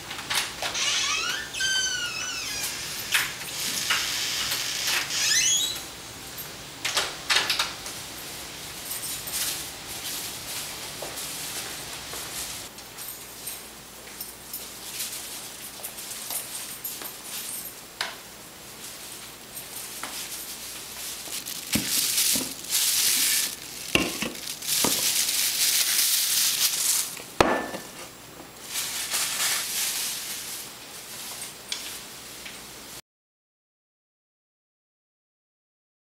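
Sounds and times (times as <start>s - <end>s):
loud hissing: 21.3s - 27.2s
can clinking on countertop: 21.7s - 25.1s.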